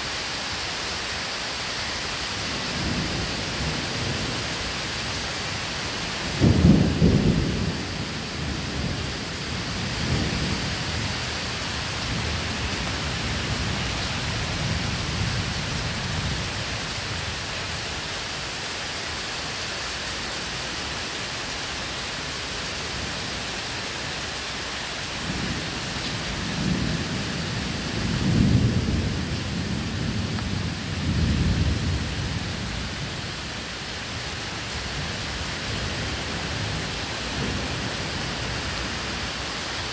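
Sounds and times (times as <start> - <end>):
steady rain: 0.0 - 39.9
rolling thunder: 6.2 - 11.2.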